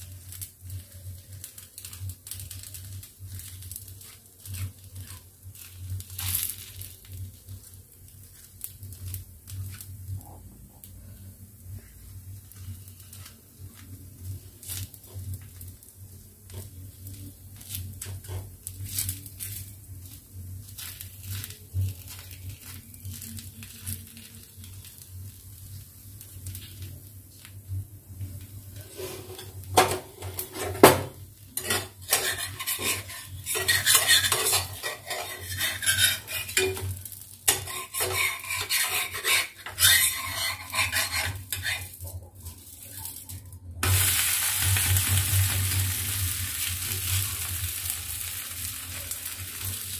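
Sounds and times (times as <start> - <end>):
pancake sizzling: 0.0 - 49.9
metal utensils scraping on iron pan: 17.6 - 19.6, 28.8 - 42.3.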